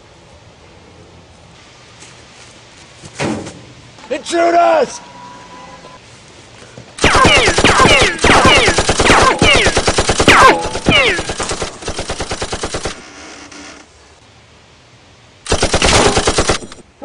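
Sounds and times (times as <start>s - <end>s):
automatic gunfire bursts: 7.0s - 13.0s, 15.5s - 16.8s.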